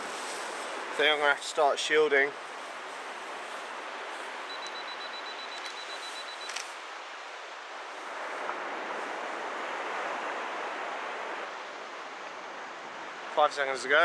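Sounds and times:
surf on beach: 0.0s - 14.0s
wind: 0.0s - 14.0s
faint high broken beep: 4.5s - 6.6s
faint camera clicks: 5.6s - 6.8s.

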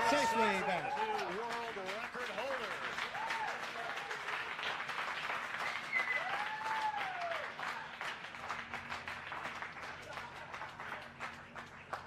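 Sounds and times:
people applauding and cheering: 0.0s - 12.0s
person whooping: 6.0s - 7.5s.

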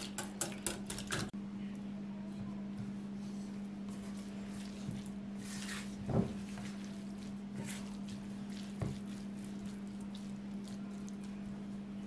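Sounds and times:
spatula scraping vegetables in pan: 3.2s - 10.6s.

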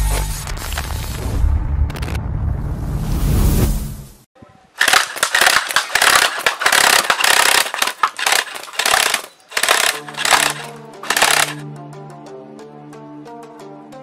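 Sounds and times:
bb gun rapid fire: 4.8s - 11.6s.

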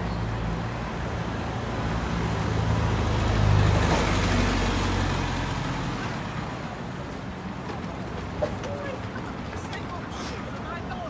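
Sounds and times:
street traffic: 0.0s - 11.0s
van driving past: 1.2s - 9.4s.

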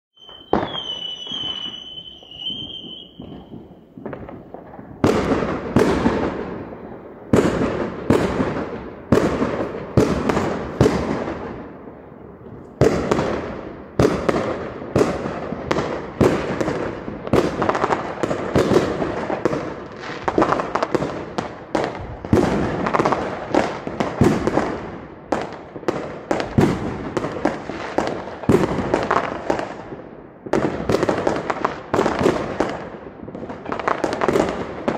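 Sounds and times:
high firework whistle: 0.2s - 4.0s
fireworks bangs and booms: 0.2s - 34.9s
fireworks crackling: 0.2s - 34.9s.

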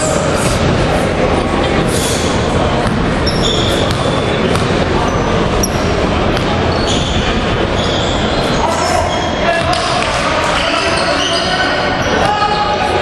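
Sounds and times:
din of large hall: 0.0s - 13.0s
scattered voices: 0.0s - 13.0s
sneaker squeaks: 1.9s - 10.0s, 10.6s - 12.8s
basketball bouncing on hardwood: 3.8s - 4.8s.

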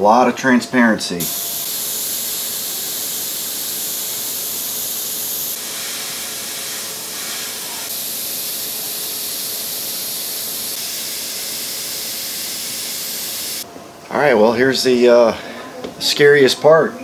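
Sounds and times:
airbrush hissing: 1.2s - 13.7s.

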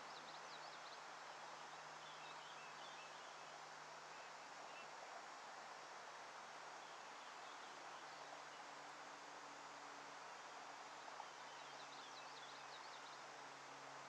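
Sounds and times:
faint steady hiss: 0.0s - 14.0s
faint bird chirps: 11.2s - 13.3s.

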